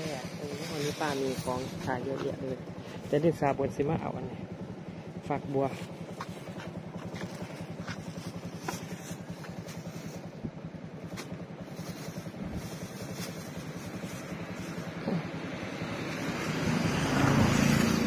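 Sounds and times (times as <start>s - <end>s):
motorcycle engine idling: 0.0s - 16.5s
plastic bags rustling: 11.0s - 14.9s.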